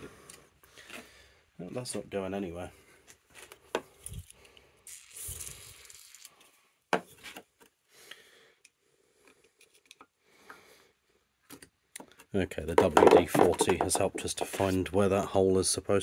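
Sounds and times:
aerosol hiss: 4.9s - 6.2s.

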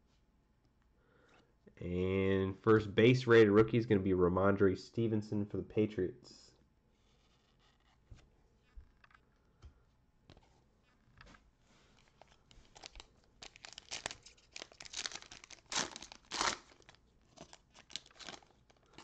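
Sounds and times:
foil wrappers crinkling: 11.9s - 19.0s.

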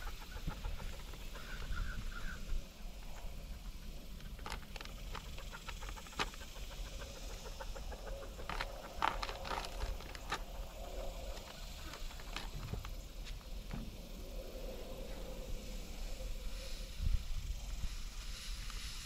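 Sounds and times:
corn rattling against metal feeder: 8.0s - 12.8s.

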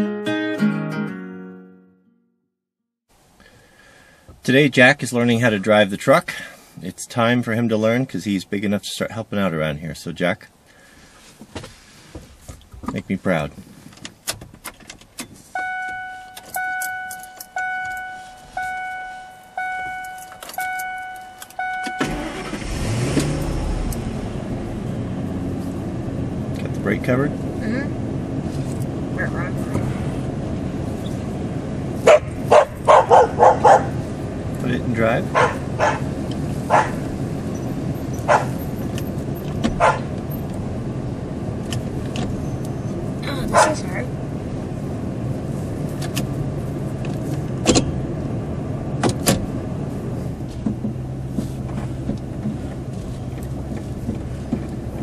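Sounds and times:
key clicking in ignition: 14.0s - 18.1s, 18.8s - 22.4s, 38.0s - 40.6s
dashboard warning chime: 15.6s - 22.5s
engine running: 16.2s - 55.0s
dog barking: 32.0s - 34.0s, 35.3s - 36.1s, 36.7s - 37.0s, 38.2s - 38.6s, 39.8s - 40.1s, 43.5s - 43.8s.

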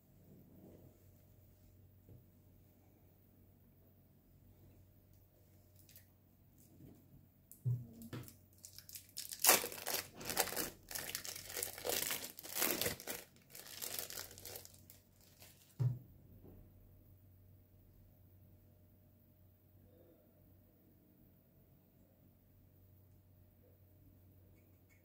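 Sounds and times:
plastic film crinkling and tearing: 8.2s - 15.8s
light thump: 15.8s - 16.6s.

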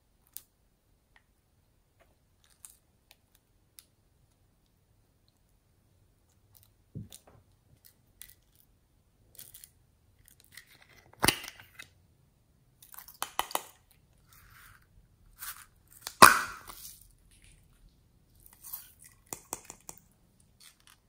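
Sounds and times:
sharp plastic snaps: 16.0s - 16.8s.

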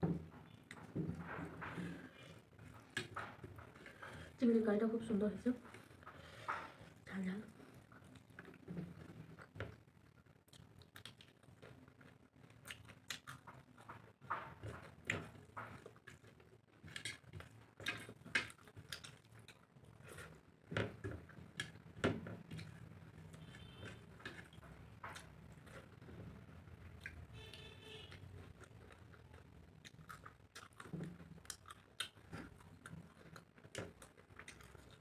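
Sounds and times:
chewing and lip smacks: 10.5s - 13.9s, 28.4s - 35.0s.

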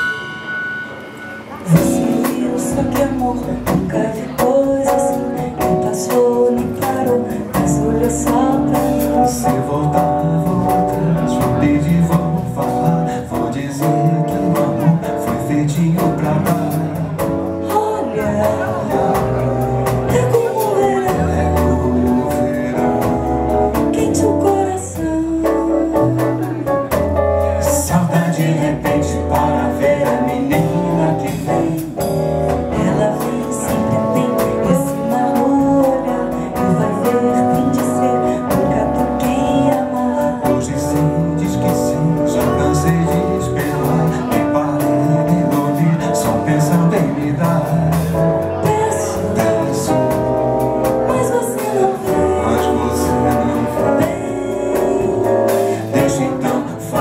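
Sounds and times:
drum kit: 0.0s - 57.0s
keyboard: 0.0s - 57.0s
electric bass: 1.4s - 57.0s
saxophone: 28.8s - 57.0s
trumpet: 32.5s - 57.0s.

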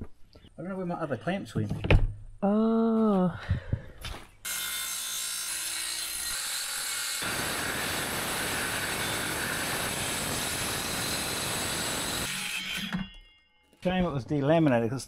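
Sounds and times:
electric saw cutting plywood: 4.5s - 13.1s.

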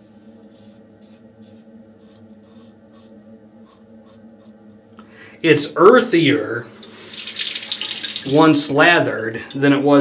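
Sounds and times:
razor scraping stubble: 0.4s - 4.6s.

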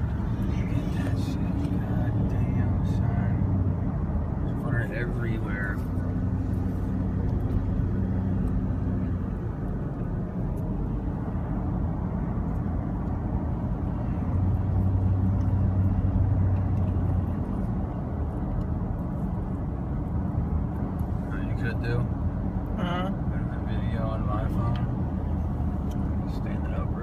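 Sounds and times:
car engine hum: 0.0s - 27.0s
road noise: 0.0s - 27.0s.

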